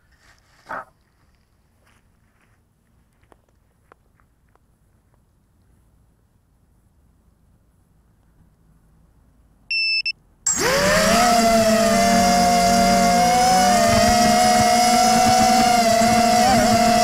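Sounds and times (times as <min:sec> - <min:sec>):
short high beeps: 0:09.7 - 0:10.9
drone motors whining: 0:10.5 - 0:17.0.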